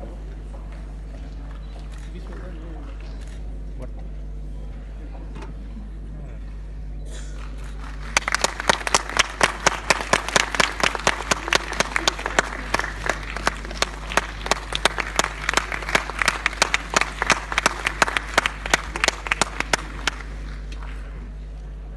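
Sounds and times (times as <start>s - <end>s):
steady low hum: 0.0s - 21.9s
audience applauding: 7.4s - 21.4s.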